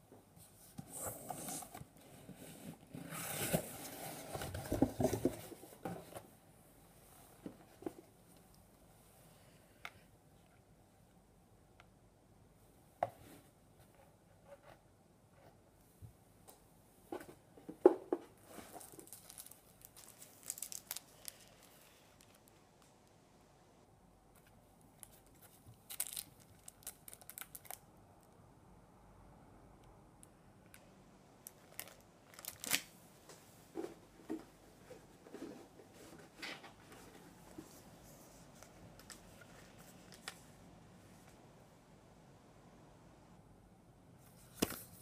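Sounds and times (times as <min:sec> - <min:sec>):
tissue paper crinkling: 0:18.6 - 0:22.5.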